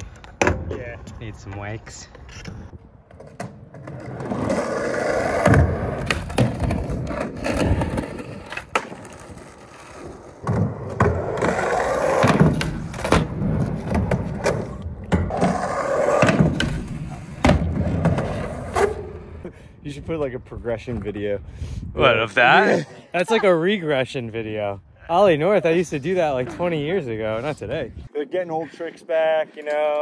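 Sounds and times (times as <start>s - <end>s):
skateboard wheels rolling on asphalt: 0.3s - 19.5s.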